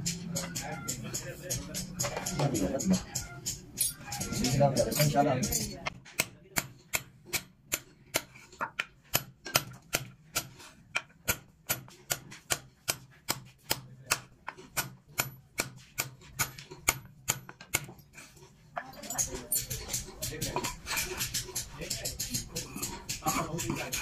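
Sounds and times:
hammer tapping metal punch: 0:00.0 - 0:18.0.

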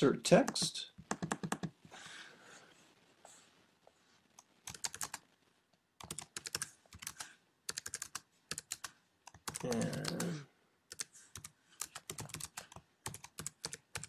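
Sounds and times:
keyboard typing: 0:00.4 - 0:01.8, 0:04.6 - 0:05.2, 0:06.0 - 0:14.0.

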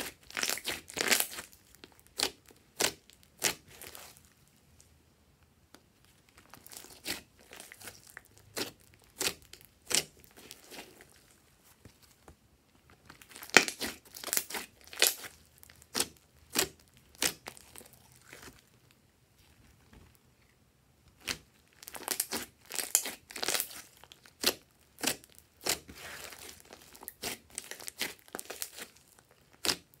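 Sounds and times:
slime popping and crackling: 0:00.0 - 0:04.2, 0:06.4 - 0:11.3, 0:13.1 - 0:18.6, 0:21.2 - 0:30.0.

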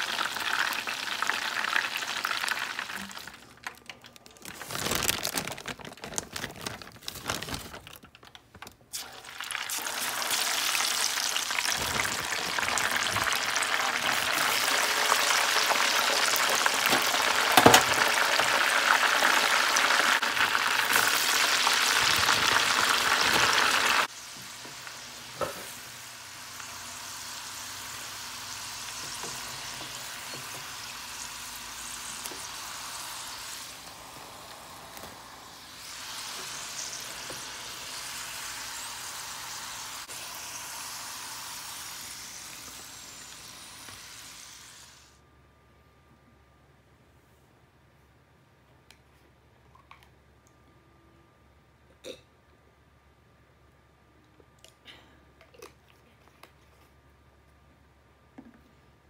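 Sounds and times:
fries sizzling in hot oil: 0:00.0 - 0:03.6, 0:08.9 - 0:45.2.

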